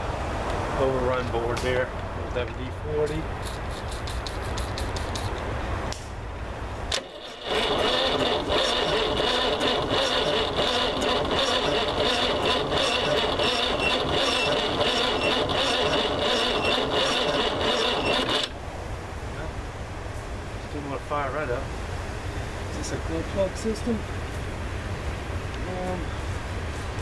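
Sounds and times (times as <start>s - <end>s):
starter motor cranking diesel engine: 6.9s - 18.6s.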